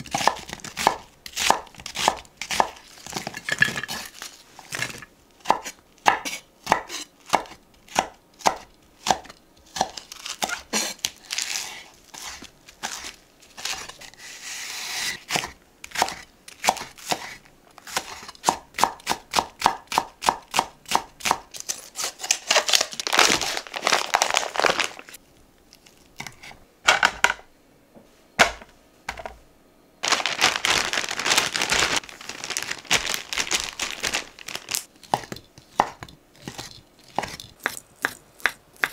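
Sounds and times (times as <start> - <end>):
knife chopping on cutting board: 35.0 - 38.9.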